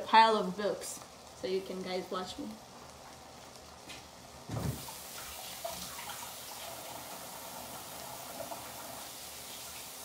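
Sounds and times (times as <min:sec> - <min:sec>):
water splashes: 0:04.6 - 0:07.0
faucet running into sink: 0:04.6 - 0:10.0.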